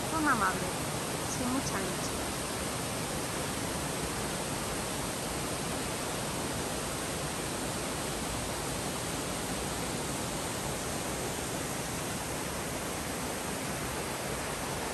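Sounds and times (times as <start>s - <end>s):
flowing water rushing: 0.0s - 14.9s.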